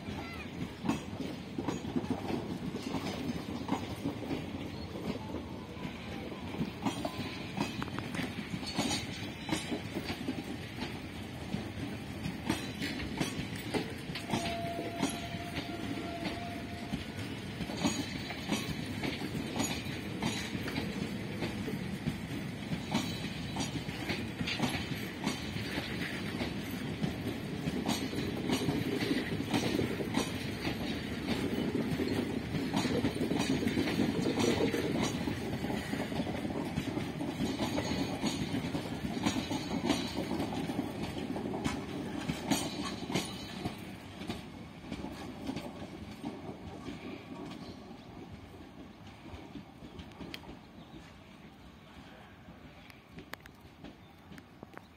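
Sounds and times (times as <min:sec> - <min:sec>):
wheels clacking over rail joints: 0:00.0 - 0:51.5
train coaches rumbling past: 0:00.0 - 0:54.9.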